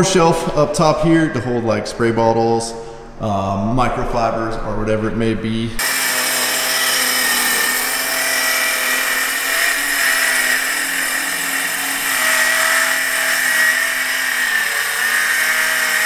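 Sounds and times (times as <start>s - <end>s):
circular saw ripping plywood: 5.8s - 16.0s.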